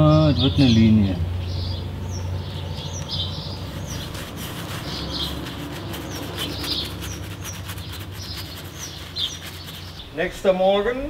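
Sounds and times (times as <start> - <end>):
small birds chirping: 0.0 - 11.0
paintbrush scrubbing on stone: 3.4 - 10.1.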